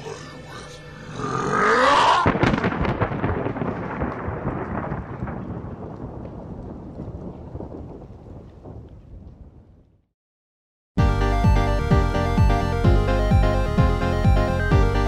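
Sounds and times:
thunderclap with rumble: 0:02.1 - 0:10.1.

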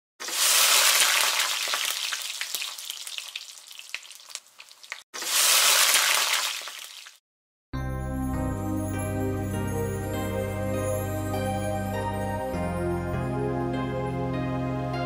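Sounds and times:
food sizzling in hot oil: 0:00.2 - 0:07.2.

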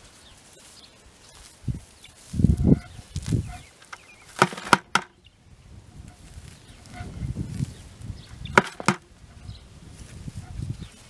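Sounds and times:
hand fork scraping soil: 0:00.0 - 0:05.2, 0:06.0 - 0:11.0
sharp knocks: 0:04.4 - 0:05.2, 0:08.5 - 0:09.1.

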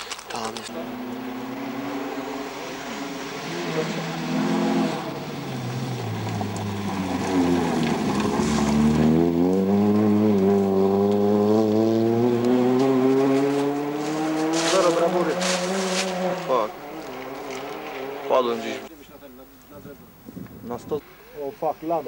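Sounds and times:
rally car engine passing: 0:00.7 - 0:18.9.

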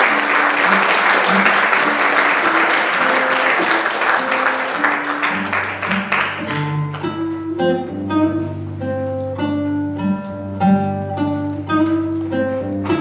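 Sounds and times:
applause: 0:00.0 - 0:07.1
acoustic guitar jazz playing: 0:00.0 - 0:13.0.

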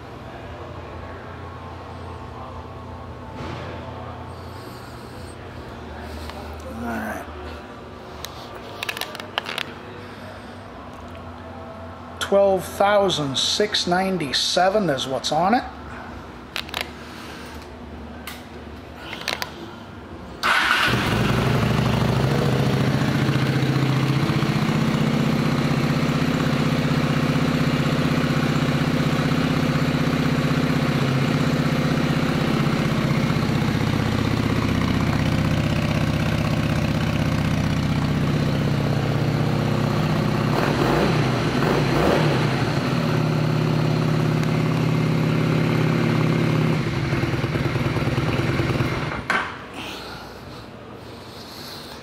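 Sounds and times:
motorcycle engine revving: 0:20.4 - 0:49.3
motorcycle engine idling: 0:20.5 - 0:49.3.

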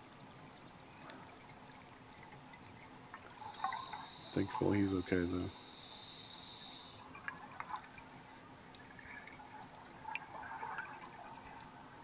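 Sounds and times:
underwater bubbles gurgling: 0:00.4 - 0:12.0.

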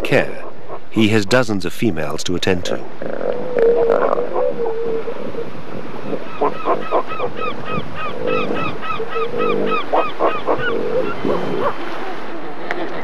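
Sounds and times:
low pulsed animal call: 0:02.9 - 0:13.0
bird calling harsh notes: 0:03.0 - 0:11.8.

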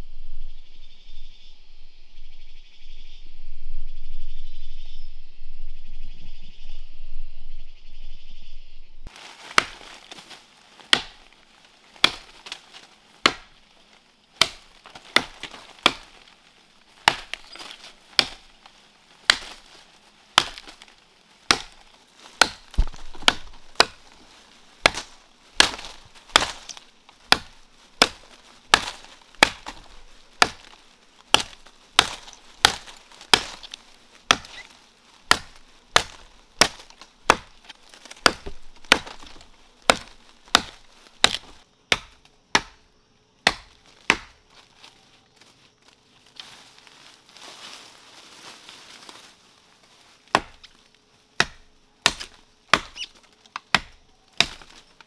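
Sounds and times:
blade chopping tree trunk: 0:09.5 - 0:11.3, 0:12.0 - 0:13.6, 0:14.4 - 0:16.3, 0:17.0 - 0:18.5, 0:19.2 - 0:19.7, 0:20.3 - 0:24.2, 0:24.8 - 0:34.7, 0:35.3 - 0:42.8, 0:43.4 - 0:44.4, 0:50.3 - 0:50.8, 0:51.4 - 0:55.0.

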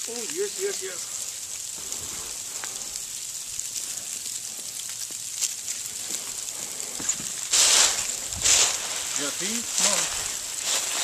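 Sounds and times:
steady hiss: 0:00.0 - 0:11.0
dog stepping through dry leaves: 0:07.4 - 0:11.0.

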